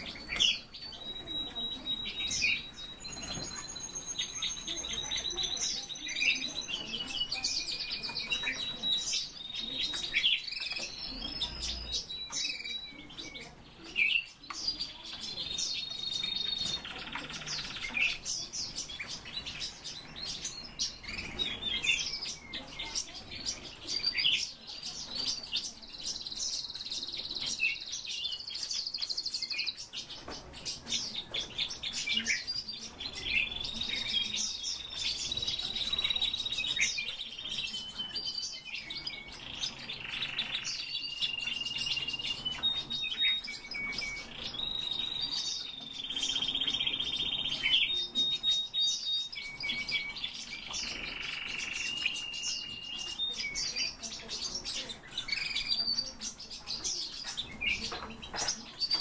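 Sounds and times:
songbirds chirping and trilling: 0.0 - 59.0.

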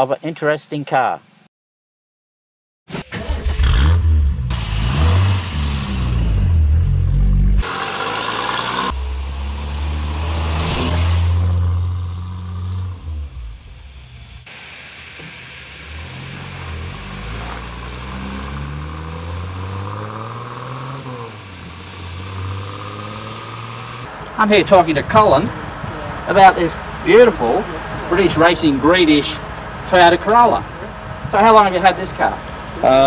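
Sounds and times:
car engine revving and accelerating: 3.1 - 14.1, 15.9 - 24.2.

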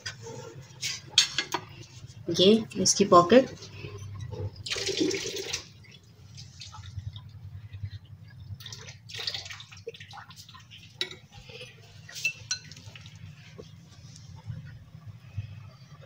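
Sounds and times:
faint low hum: 1.6 - 16.0
spoon scraping glass bowl: 11.0 - 12.7.

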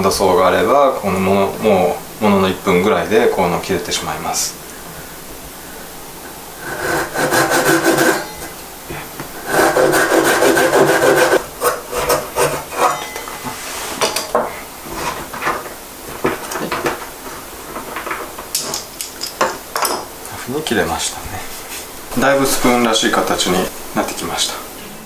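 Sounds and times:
hand saw rasping through wood: 6.6 - 8.4, 9.4 - 13.0.

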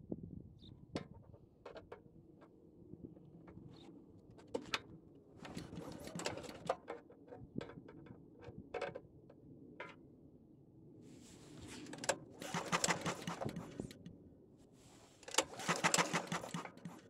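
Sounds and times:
engine cranking: 11.6 - 14.0, 15.2 - 17.0
recoil starter pulls: 11.6 - 14.0, 15.0 - 17.0.

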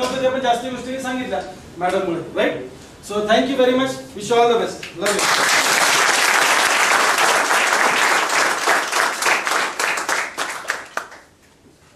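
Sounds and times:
audience applauding: 5.0 - 11.3.

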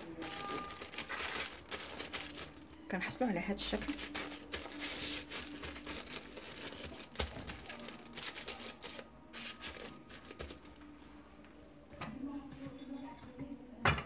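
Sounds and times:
aluminium foil crinkling: 0.0 - 10.8.

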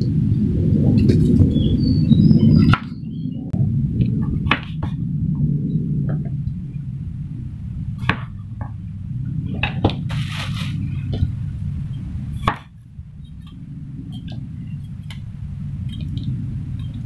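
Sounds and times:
steady low hum: 0.0 - 17.0
short rustle: 10.0 - 11.4.

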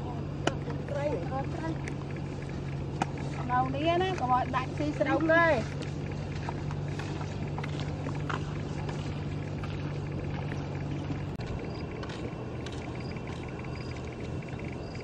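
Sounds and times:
low engine hum: 0.0 - 15.0
fast insect chirping: 10.7 - 12.0, 12.8 - 15.0.

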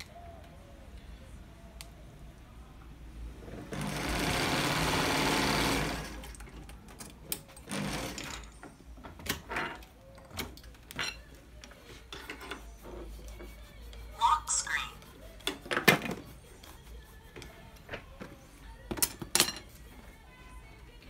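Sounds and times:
sewing machine running: 3.7 - 6.2.

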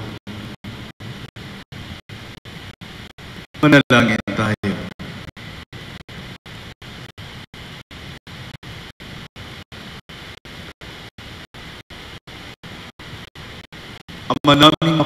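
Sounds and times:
room noise hiss: 0.0 - 15.0.

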